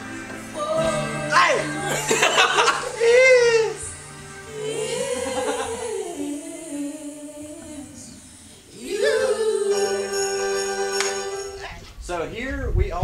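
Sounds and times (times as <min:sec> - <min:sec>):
person singing long notes: 0:00.4 - 0:11.6.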